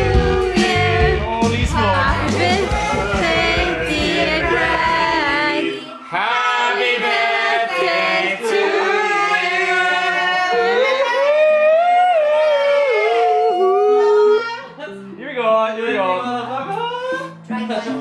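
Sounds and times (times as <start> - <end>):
low accompaniment: 0.0 - 6.0
voices singing long notes: 0.0 - 11.2.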